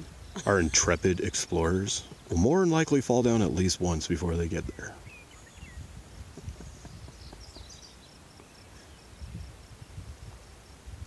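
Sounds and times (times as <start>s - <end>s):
wind rumble on microphone: 3.2s - 11.0s.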